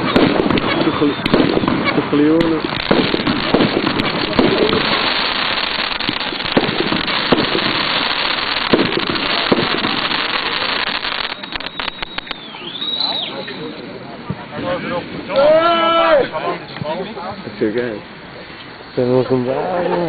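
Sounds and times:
loud firework bangs: 0.0s - 13.4s
firecrackers crackling: 0.0s - 19.4s.

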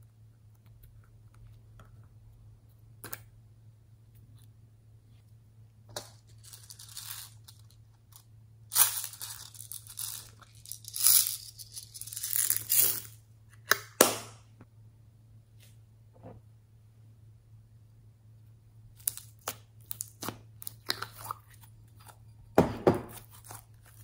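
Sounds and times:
plastic beads rattling: 6.0s - 13.2s.

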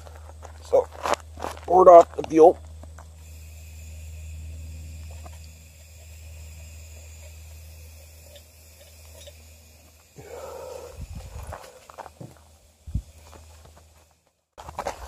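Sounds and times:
blowtorch flame rumbling: 3.1s - 14.1s
scuffing with thumps: 11.2s - 14.0s.

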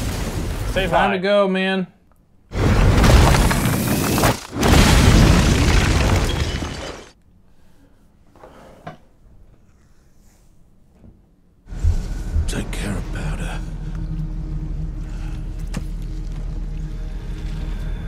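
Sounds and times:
cartoon explosion blast: 4.5s - 7.0s.

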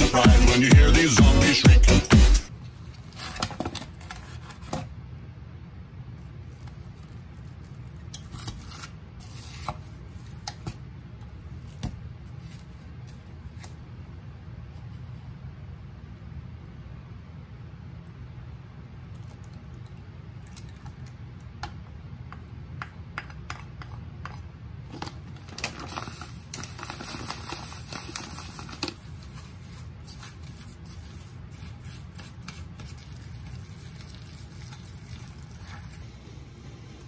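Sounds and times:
steady low hum: 27.3s - 37.0s
hand mixing ground meat: 28.1s - 36.1s.

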